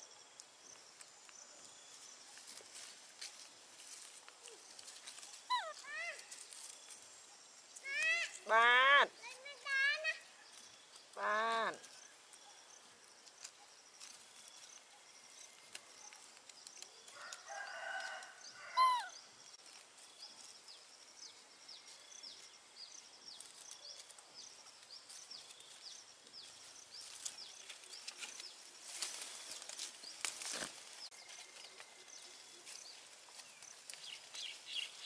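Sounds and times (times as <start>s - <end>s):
leaves rustling: 0.0s - 35.0s
small birds chirping: 0.0s - 35.0s
animal calls with sharp cry: 5.4s - 6.4s, 18.6s - 19.2s.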